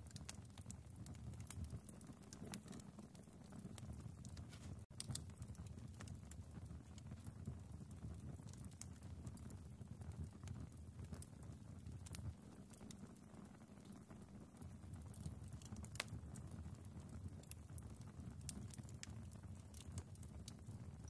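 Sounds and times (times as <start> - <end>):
fire crackling and popping: 0.0 - 21.0.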